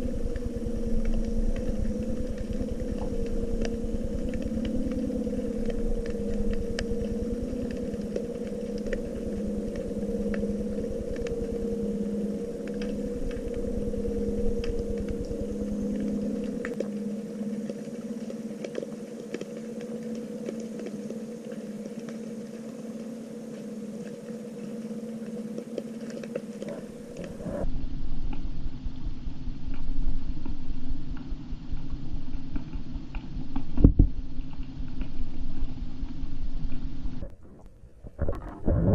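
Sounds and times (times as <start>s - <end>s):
dull rumble: 0.0s - 17.8s, 26.6s - 38.9s
faint clicks and crackles: 0.0s - 38.9s
underwater mechanical hum: 0.0s - 38.9s.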